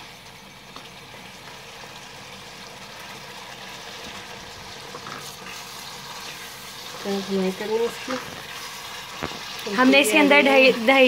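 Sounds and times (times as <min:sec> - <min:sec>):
gravy sizzling and bubbling: 0:00.0 - 0:11.0
wooden spatula scraping: 0:04.8 - 0:11.0.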